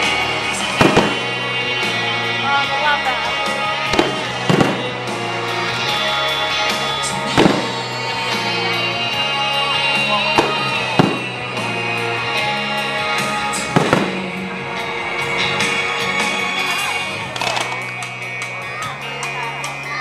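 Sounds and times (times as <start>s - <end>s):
music playing: 0.0s - 20.0s
firework shells bursting: 17.4s - 17.9s.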